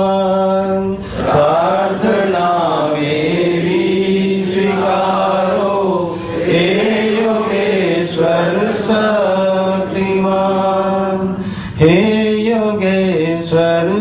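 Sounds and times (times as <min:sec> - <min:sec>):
man singing devotional prayer: 0:00.0 - 0:14.0.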